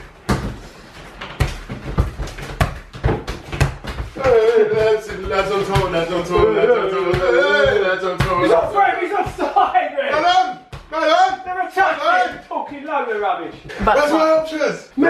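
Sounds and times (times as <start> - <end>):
football thudding on hard floor: 0.2 - 9.6, 10.2 - 11.0.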